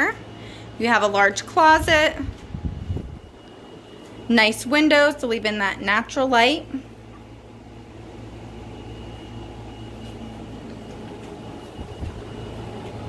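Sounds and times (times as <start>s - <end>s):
air conditioner humming and whining: 0.0s - 13.0s.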